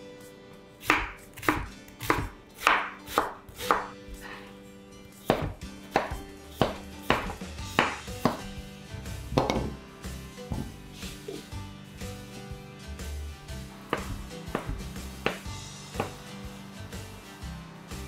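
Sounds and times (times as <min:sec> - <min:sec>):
quiet background music: 0:00.0 - 0:18.0
knife cutting on wooden board: 0:00.8 - 0:04.5, 0:05.2 - 0:08.5, 0:13.9 - 0:15.4.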